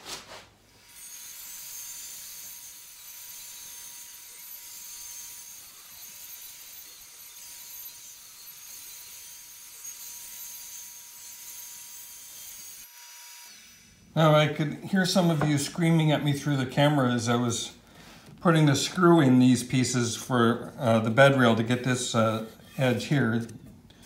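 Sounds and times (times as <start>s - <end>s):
table saw ripping wood: 15.1s - 15.9s.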